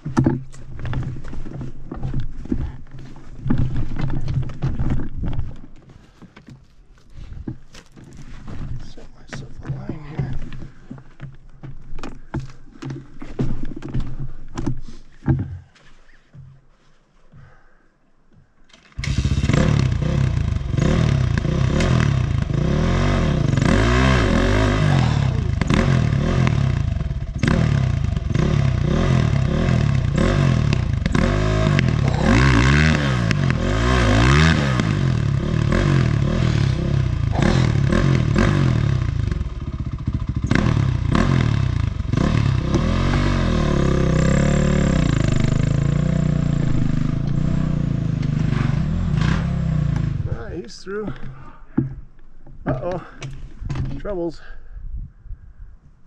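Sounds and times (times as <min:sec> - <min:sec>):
knocks and rattles from bike: 0:00.0 - 0:16.6, 0:18.4 - 0:50.4, 0:51.0 - 0:54.1
motorcycle engine revving: 0:18.9 - 0:50.5.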